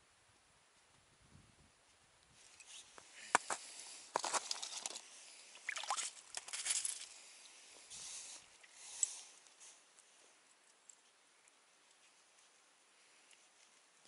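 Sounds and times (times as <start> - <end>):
rustling and scraping: 2.3 - 11.2
slushy splashes: 5.6 - 6.6.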